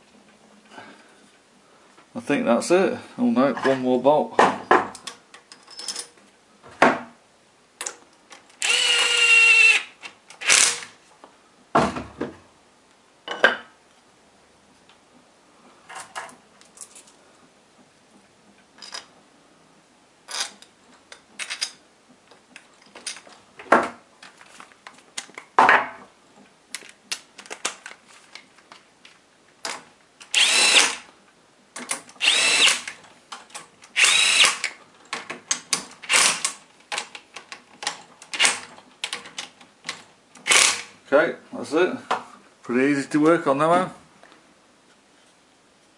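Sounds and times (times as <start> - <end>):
power driver whirring: 8.6 - 10.8, 30.3 - 31.0, 32.2 - 32.9, 34.0 - 34.7.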